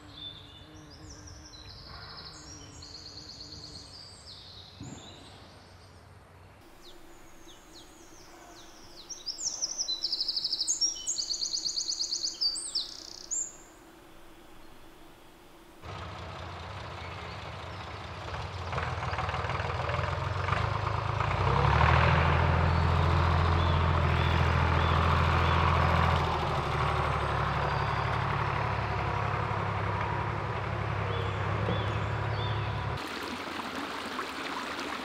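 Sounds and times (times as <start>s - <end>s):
faint bird chirps: 6.7s - 15.7s
tractor engine passing: 6.7s - 35.0s.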